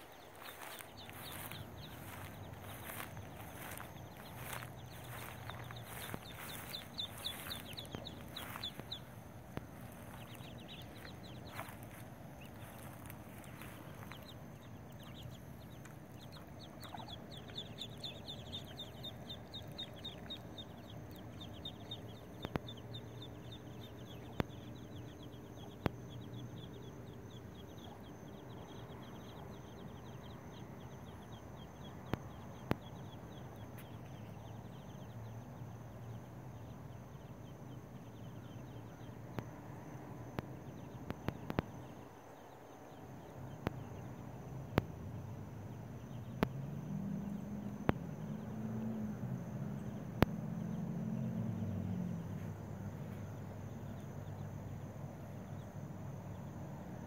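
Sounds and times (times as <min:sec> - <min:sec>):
ducklings peeping: 0:00.0 - 0:35.4, 0:40.4 - 0:43.0
steady low hum: 0:00.0 - 0:57.0.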